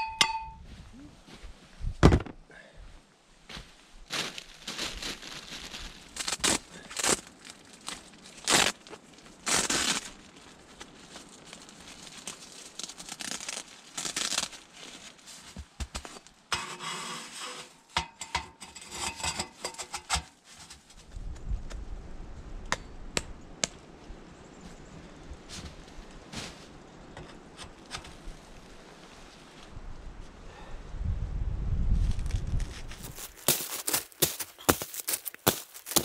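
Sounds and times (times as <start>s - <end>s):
tent fabric crinkling: 4.1s - 16.3s, 32.0s - 36.0s
metal stovepipe scraping and clinking: 16.5s - 20.3s.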